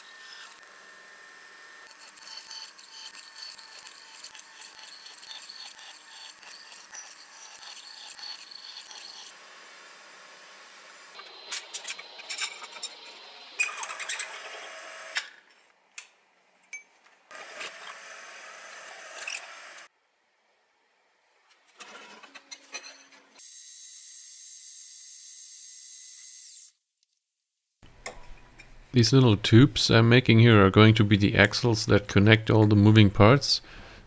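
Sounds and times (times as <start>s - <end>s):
drilling machine boring metal: 1.5s - 9.4s.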